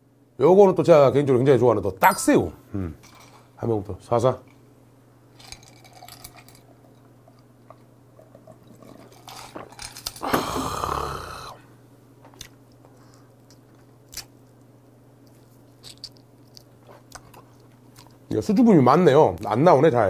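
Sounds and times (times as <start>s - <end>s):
loud breathy mouth noise: 10.2s - 11.6s.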